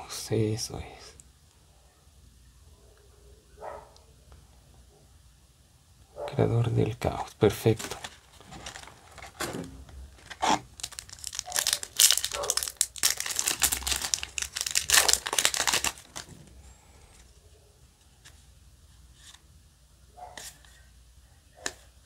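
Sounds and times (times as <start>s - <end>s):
foil wrapper crinkling and tearing: 7.6s - 9.5s, 10.1s - 16.3s.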